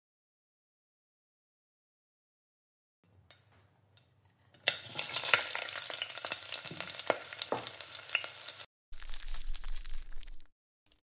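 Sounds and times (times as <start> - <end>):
oil sizzling in frying pan: 4.6 - 10.4.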